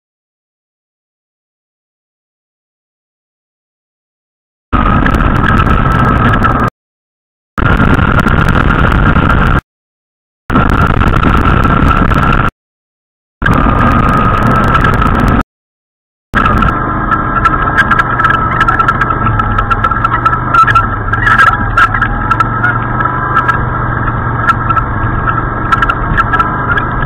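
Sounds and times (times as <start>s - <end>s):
quad bike engine running: 4.8s - 6.7s, 13.4s - 15.4s, 16.4s - 27.0s.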